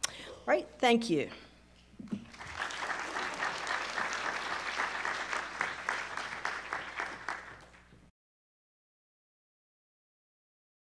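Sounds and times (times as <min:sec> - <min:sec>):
audience applauding: 0:02.2 - 0:08.0.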